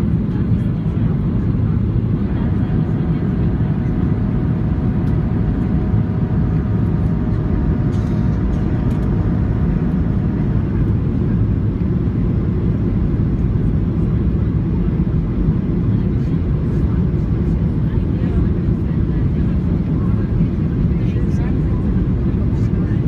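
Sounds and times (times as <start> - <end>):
airplane cabin rumble: 0.0 - 23.0
jet engine noise and airflow: 0.0 - 23.0.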